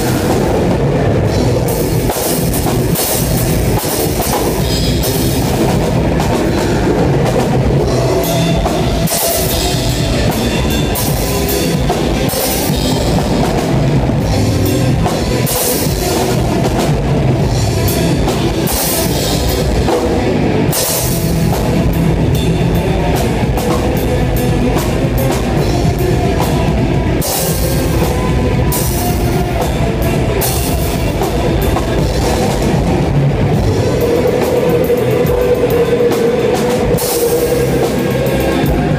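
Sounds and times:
loud close drums: 0.0 - 38.9
rock band playing: 0.0 - 38.9.

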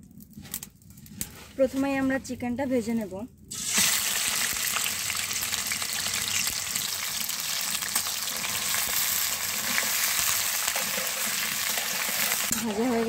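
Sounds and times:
chicken sizzling in hot oil: 3.5 - 13.0
spatula turning food in pan: 3.5 - 13.0.

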